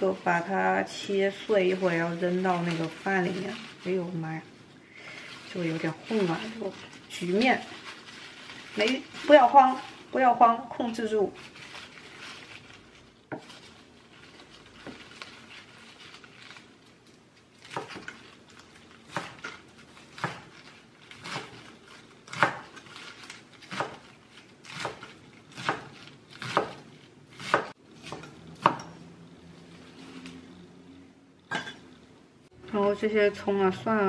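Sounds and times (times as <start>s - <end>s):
knife chopping on cutting board: 22.3s - 22.8s, 23.7s - 29.0s.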